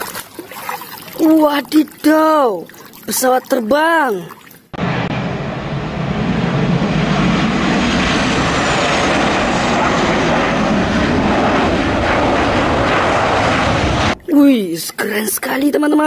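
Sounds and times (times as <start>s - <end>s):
jet engines running: 4.7s - 14.3s.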